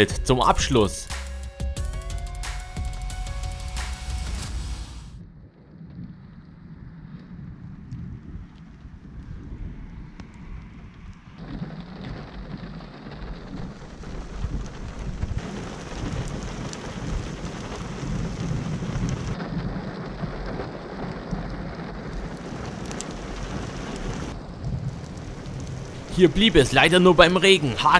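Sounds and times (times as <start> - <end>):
low rumble: 4.2 - 26.2
heavy rain: 11.2 - 27.9.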